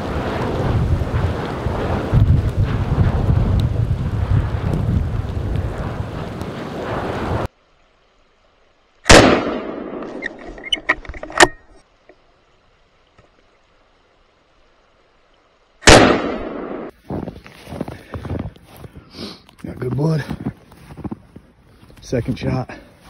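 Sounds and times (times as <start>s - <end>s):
rifle shots echoing: 9.1s - 10.2s, 15.8s - 16.9s.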